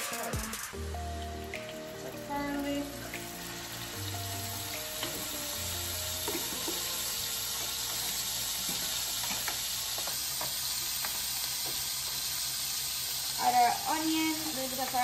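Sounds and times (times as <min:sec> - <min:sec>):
faint background music: 0:00.0 - 0:09.1, 0:13.3 - 0:15.0
food sizzling in a frying pan: 0:00.0 - 0:15.0.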